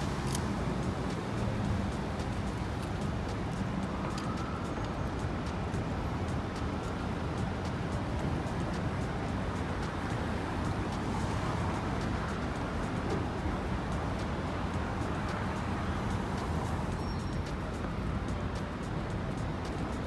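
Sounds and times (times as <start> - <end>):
street traffic rumble: 0.0 - 20.0.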